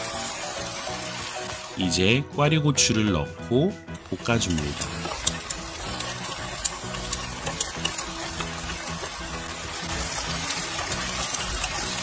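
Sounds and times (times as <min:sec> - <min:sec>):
peppers sizzling in a pan: 0:00.0 - 0:01.9, 0:03.9 - 0:12.0
sharp pops and clicks: 0:03.8 - 0:12.0.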